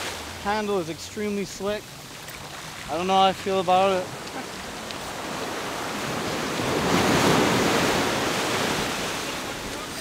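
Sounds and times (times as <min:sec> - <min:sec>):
surf breaking on beach: 0:02.6 - 0:10.0.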